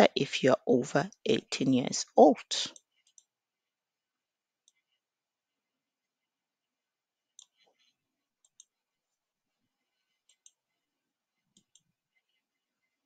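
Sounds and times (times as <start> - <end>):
faint mouse clicks: 7.4 - 8.7, 10.2 - 10.6, 11.5 - 11.9.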